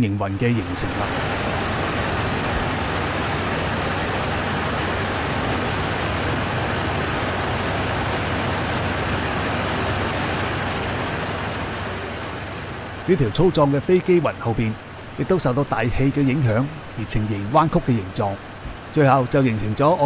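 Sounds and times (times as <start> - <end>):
low hum: 0.0 - 15.4
jet airliner cabin roar: 0.1 - 19.5.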